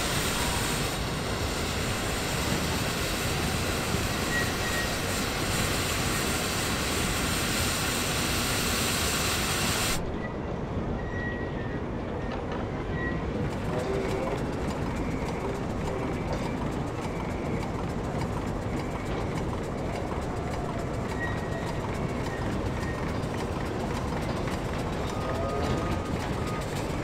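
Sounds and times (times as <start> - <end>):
steam engine clatter: 0.0 - 10.0, 12.3 - 27.0
steam hissing: 0.0 - 10.0.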